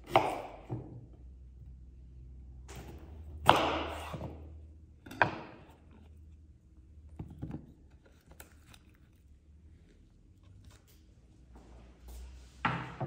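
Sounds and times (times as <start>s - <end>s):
knife chopping on wooden board: 0.0s - 0.9s, 3.4s - 4.4s.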